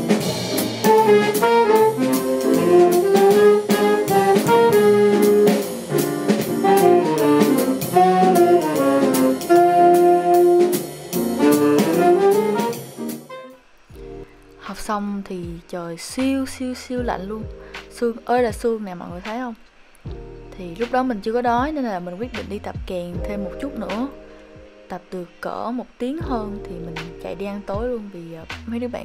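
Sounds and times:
upright bass: 0:00.0 - 0:12.7, 0:16.3 - 0:17.8, 0:20.1 - 0:24.2, 0:26.2 - 0:27.9
saxophone melody: 0:00.0 - 0:13.7
drum kit and cymbals: 0:00.0 - 0:14.2.

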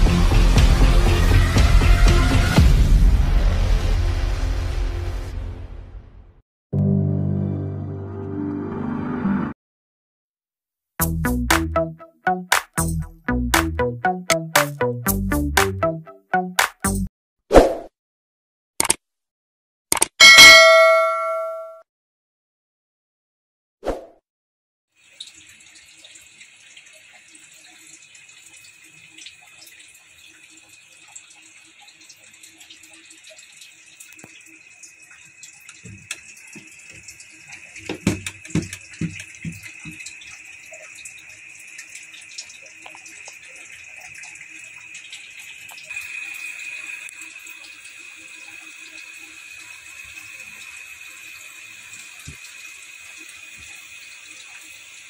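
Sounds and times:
knocks and clatter in cooking pan: 0:37.8 - 0:40.1.

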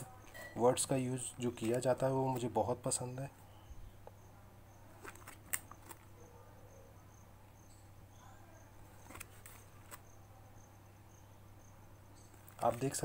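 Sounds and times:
book pages turning: 0:01.6 - 0:02.5, 0:05.0 - 0:06.1, 0:08.9 - 0:10.1, 0:12.3 - 0:13.0.

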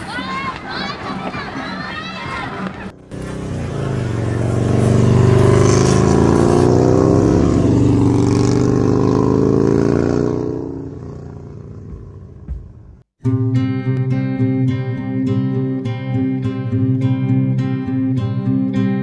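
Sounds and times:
engine droning: 0:02.6 - 0:13.0.

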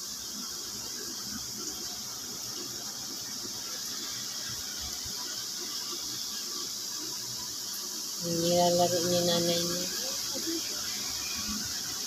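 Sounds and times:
room ambience hiss: 0:00.0 - 0:12.0.

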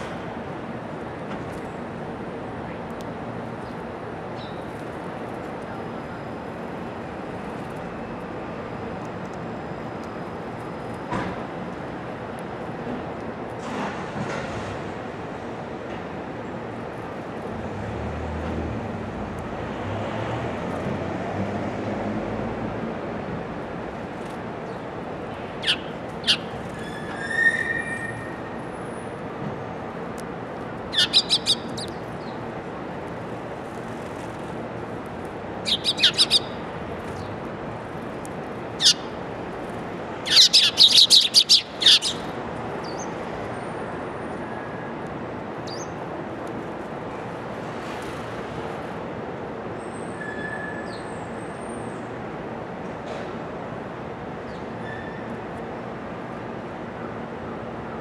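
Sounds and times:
steady background noise: 0:00.0 - 0:58.0
sparrows chirping: 0:03.6 - 0:04.7, 0:25.5 - 0:28.4, 0:30.8 - 0:32.5, 0:35.6 - 0:37.4, 0:38.7 - 0:39.2, 0:40.2 - 0:43.2, 0:45.6 - 0:46.0.

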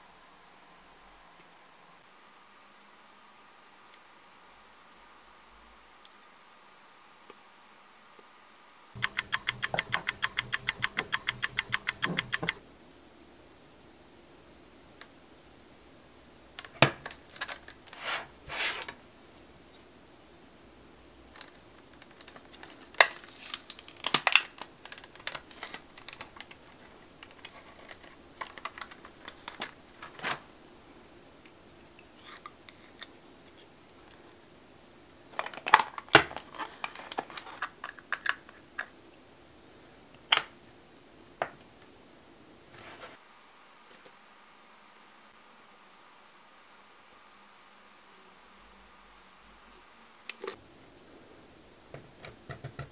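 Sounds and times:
fingernails and plastic clicking: 0:09.0 - 0:12.6
plastic packaging crinkling: 0:22.0 - 0:30.4.

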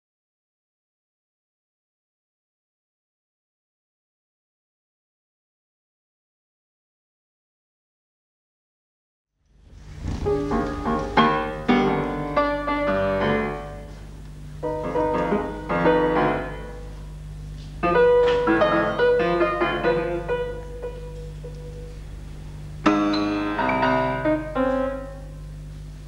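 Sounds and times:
steady low hum: 0:09.4 - 0:26.0
solo grand piano: 0:09.6 - 0:26.0.

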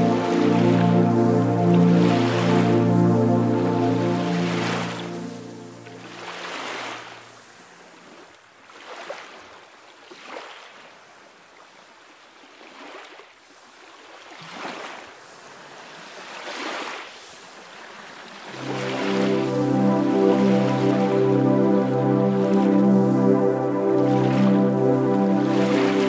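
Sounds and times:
soft music: 0:00.0 - 0:07.4, 0:18.5 - 0:26.0
sea waves washing in: 0:00.0 - 0:08.2, 0:14.6 - 0:26.0.

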